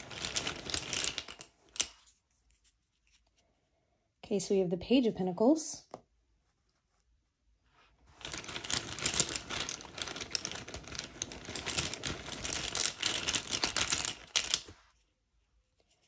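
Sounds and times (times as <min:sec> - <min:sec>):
tiles clicking and clattering: 0:00.0 - 0:02.2, 0:08.1 - 0:14.9.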